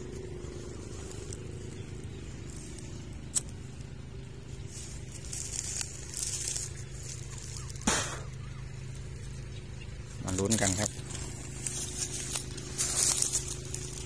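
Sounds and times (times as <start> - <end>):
brush rustling: 0.0 - 14.0
honeybees buzzing: 0.0 - 14.0
twig snapping: 2.7 - 4.0, 5.1 - 8.6, 10.8 - 14.0.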